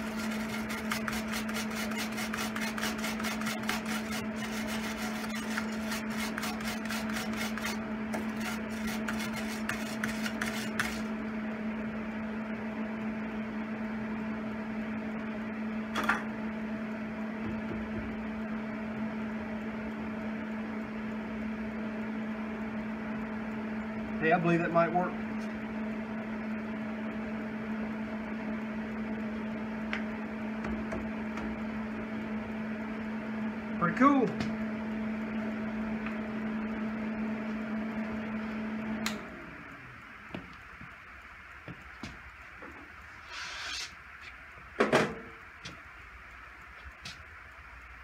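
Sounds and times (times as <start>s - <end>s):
welder arc crackling: 0.0s - 11.1s
steady low hum: 0.0s - 48.0s.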